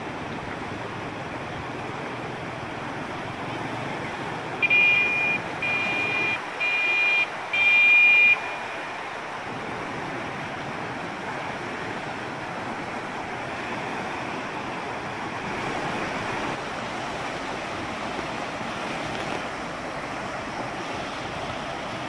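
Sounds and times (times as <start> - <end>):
water rushing: 0.0 - 22.0
loud high-pitched beeps: 4.6 - 8.6.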